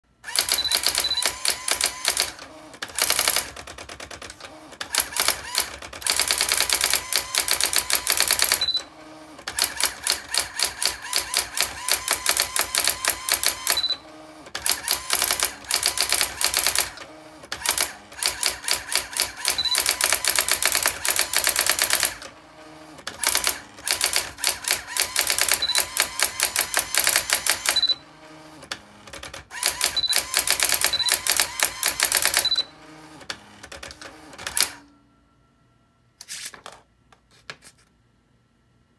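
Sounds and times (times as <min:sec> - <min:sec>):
typewriter character strikes: 0:00.3 - 0:08.8, 0:09.5 - 0:14.0, 0:14.6 - 0:17.0, 0:17.6 - 0:22.2, 0:23.1 - 0:28.0, 0:29.1 - 0:32.6.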